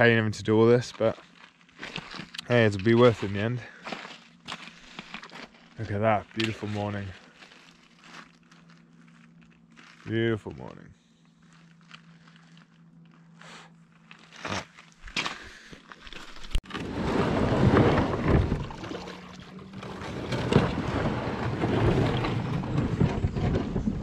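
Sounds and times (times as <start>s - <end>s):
faint steady hum: 0.0s - 16.6s
kayak hull scraping over shingle: 1.1s - 10.1s, 16.2s - 24.0s.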